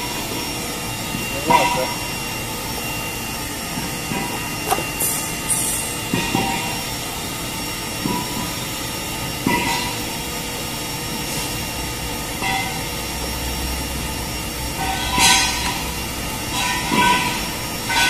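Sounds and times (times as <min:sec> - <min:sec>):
short knocks and scrapes: 0:04.1 - 0:05.2.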